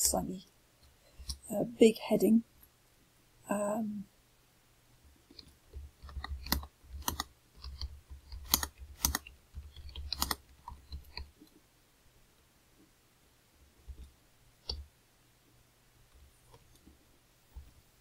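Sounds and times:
computer keyboard typing: 0:05.7 - 0:11.3.

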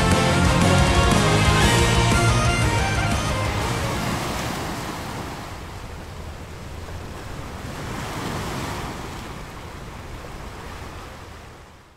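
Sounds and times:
ocean waves washing on beach: 0:03.1 - 0:11.9.

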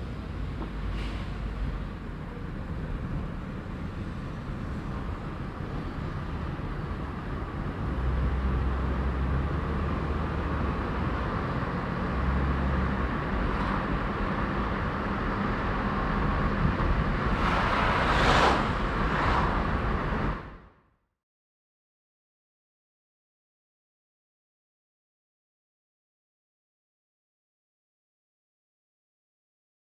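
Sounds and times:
car engine and road noise: 0:00.0 - 0:21.0.

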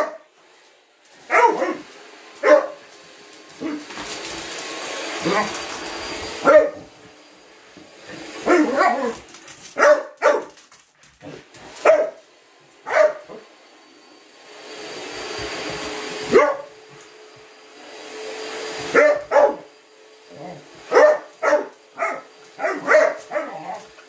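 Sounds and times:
vacuum cleaner hiss: 0:00.0 - 0:24.0
vacuum motor humming: 0:00.2 - 0:09.8, 0:11.3 - 0:24.0
small dog barking: 0:01.3 - 0:02.8, 0:06.4 - 0:06.9, 0:08.4 - 0:09.2, 0:09.8 - 0:10.5, 0:11.8 - 0:12.2, 0:12.9 - 0:13.4, 0:16.3 - 0:16.7, 0:18.9 - 0:19.7, 0:20.9 - 0:23.8.

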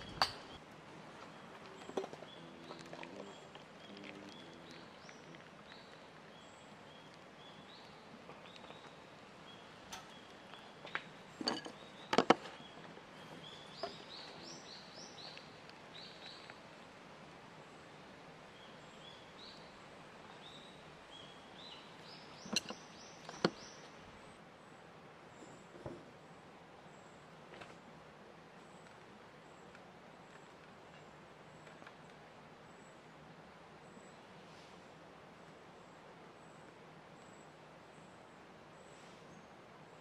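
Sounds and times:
small birds singing: 0:00.0 - 0:40.0
steady outdoor background: 0:00.0 - 0:40.0
sharp knocks and clicks: 0:22.5 - 0:23.6.

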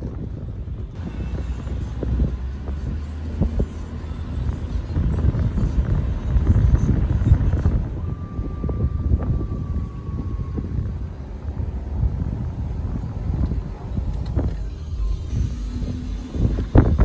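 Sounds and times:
car driving rumble: 0:00.0 - 0:17.0
wind buffeting microphone: 0:00.0 - 0:17.0.

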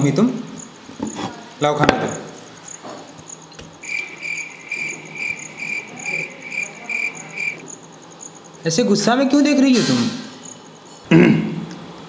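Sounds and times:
cricket chirping: 0:00.0 - 0:11.1.

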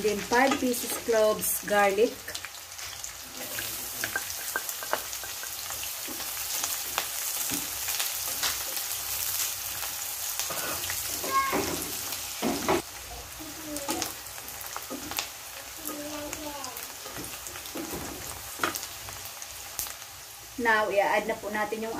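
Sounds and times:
onion and garlic sizzling in fat: 0:00.0 - 0:21.9.

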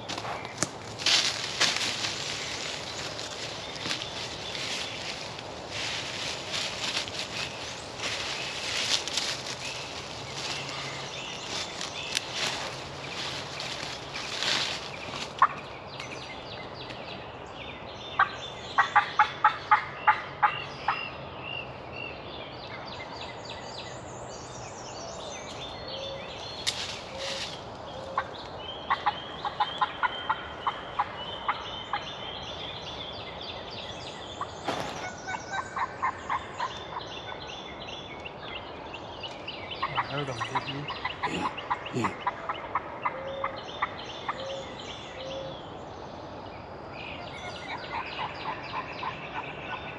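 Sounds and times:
distant turkey gobbling: 0:10.4 - 0:15.6, 0:28.9 - 0:32.0, 0:34.7 - 0:37.1, 0:39.8 - 0:44.6.

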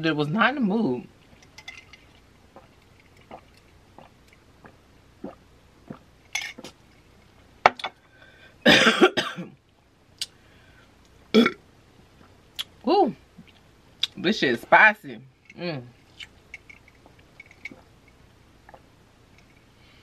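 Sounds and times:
person coughing: 0:08.7 - 0:09.6, 0:11.4 - 0:11.6
mouth clicks: 0:10.2 - 0:10.4.

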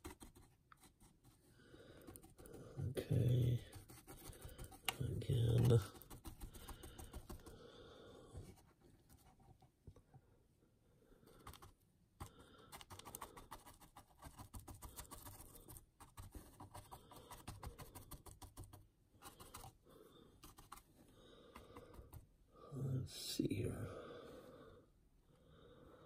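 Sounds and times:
paintbrush scratching and dabbing: 0:00.0 - 0:07.5.

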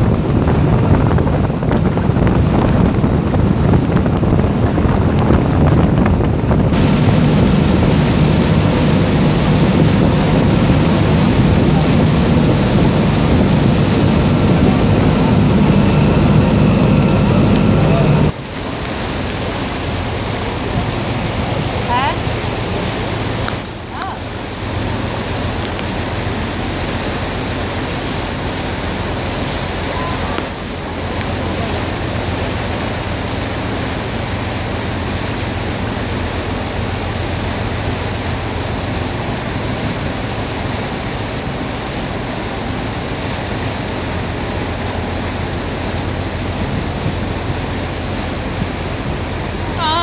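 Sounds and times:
boat engine running: 0:00.0 - 0:50.0
rush of water and wind: 0:00.0 - 0:50.0.

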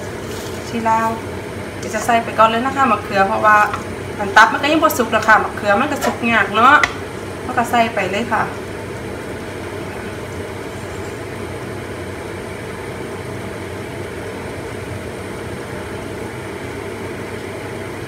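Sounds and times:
low rumbling kitchen noise: 0:00.0 - 0:18.0.

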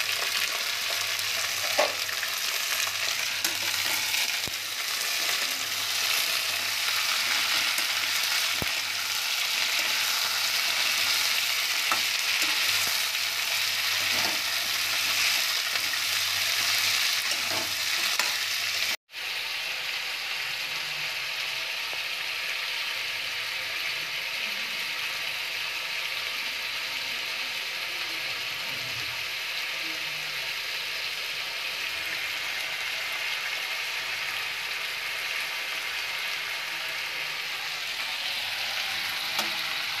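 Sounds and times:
vegetables sizzling in oil: 0:00.0 - 0:40.0
spatula scraping metal pan: 0:13.9 - 0:18.5.

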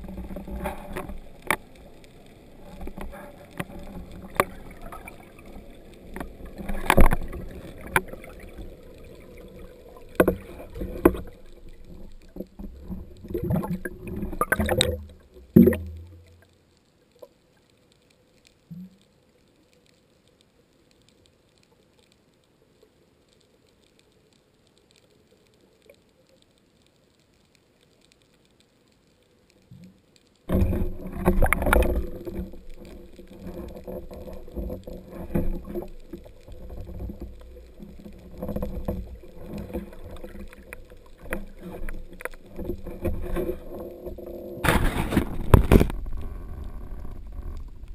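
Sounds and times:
water rushing underwater: 0:00.0 - 0:16.6, 0:30.5 - 0:47.9
underwater knocks: 0:10.0 - 0:16.2.

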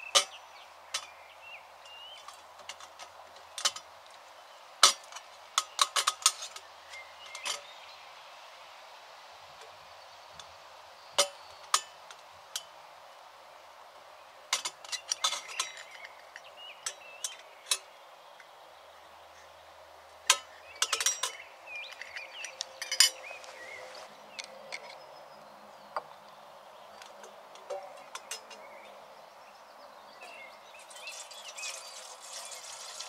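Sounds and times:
faint chirping: 0:14.2 - 0:33.0
clicks and clinks of small objects: 0:14.5 - 0:17.9, 0:20.3 - 0:23.4.

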